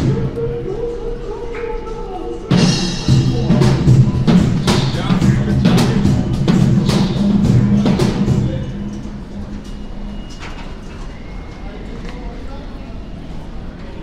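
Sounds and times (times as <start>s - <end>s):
music with drums and bass: 2.5s - 9.3s.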